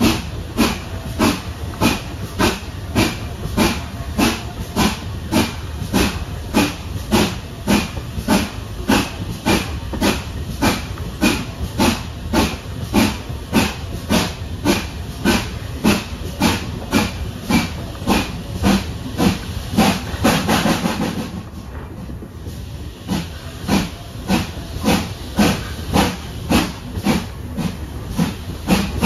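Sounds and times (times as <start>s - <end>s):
steam locomotive exhaust beats: 0.0s - 29.0s
train rumble: 0.0s - 29.0s.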